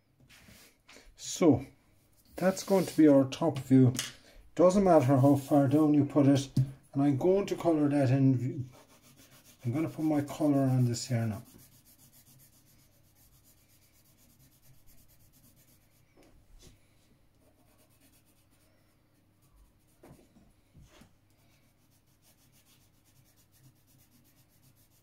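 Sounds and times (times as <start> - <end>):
pencil rubbing on paper: 2.2 - 3.3, 8.6 - 16.7, 17.4 - 20.1, 20.9 - 25.0.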